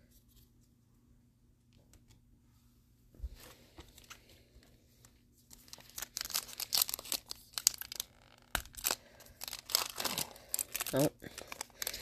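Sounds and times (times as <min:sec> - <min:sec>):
foil wrapper crinkling: 0:05.5 - 0:12.0.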